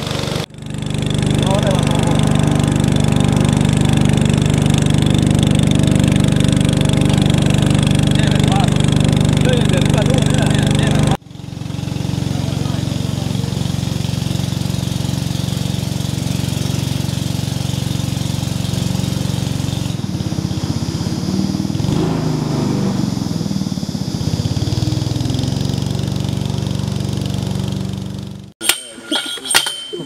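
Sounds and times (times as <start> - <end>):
boat motor running: 0.0 - 28.6
sharp metallic clinks: 28.6 - 30.0.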